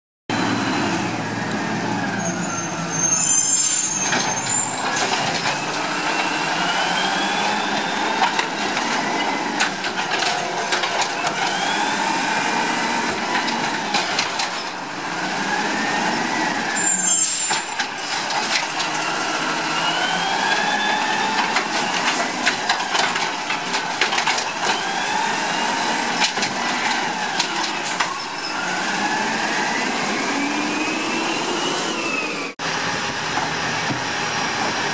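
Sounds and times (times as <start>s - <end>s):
diesel engine revving: 0.3s - 34.9s
air brakes hissing: 2.2s - 5.7s, 16.6s - 18.6s.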